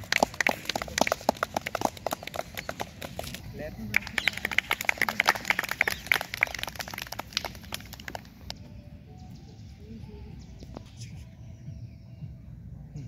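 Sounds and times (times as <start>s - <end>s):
small group clapping: 0.0s - 8.6s.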